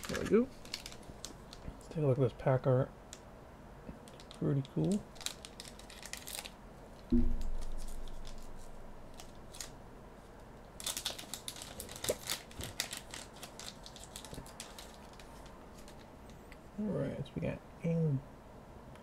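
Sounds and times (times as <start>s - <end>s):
foil pack crackling and tearing: 0.0s - 1.6s, 4.0s - 9.8s, 10.8s - 16.1s
low thump: 7.1s - 7.8s.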